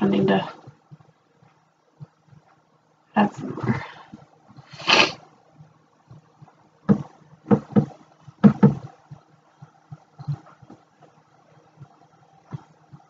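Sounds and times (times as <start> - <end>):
faint steady hum: 0.0 - 13.0
hands knocking and tapping on counter: 6.9 - 8.9.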